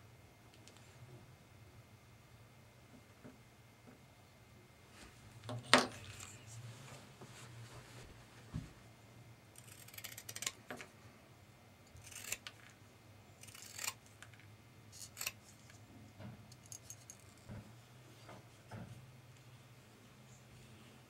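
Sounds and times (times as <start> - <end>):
faint low hum: 0.0 - 21.0
scissors snipping paper: 9.6 - 10.6, 12.0 - 12.7, 13.4 - 14.0.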